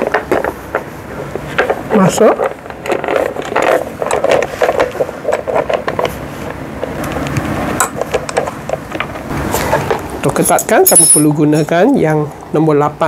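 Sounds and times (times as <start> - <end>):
plastic parts knocking and scraping: 0.0 - 10.1.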